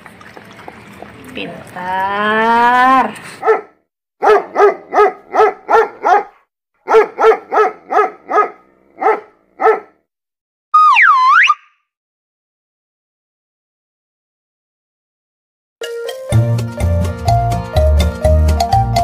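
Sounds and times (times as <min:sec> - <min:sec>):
dog barking in quick yaps: 0:03.4 - 0:10.0
whistle dipping in pitch: 0:10.8 - 0:11.8.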